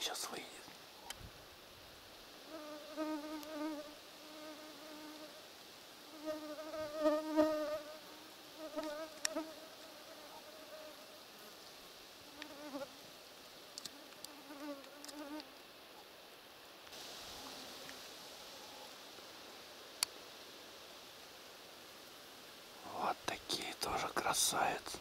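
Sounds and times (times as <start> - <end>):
flying insect buzzing: 2.4 - 5.4, 6.0 - 13.0, 13.8 - 15.6, 17.0 - 19.1.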